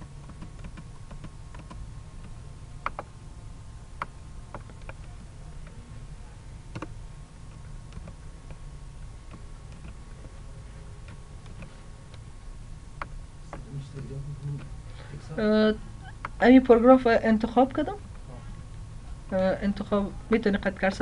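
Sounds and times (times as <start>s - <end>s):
keyboard and mouse clicks: 0.0s - 3.1s, 4.0s - 5.8s, 6.7s - 8.6s, 9.3s - 10.4s, 11.0s - 12.2s
steady low hum: 0.0s - 21.0s.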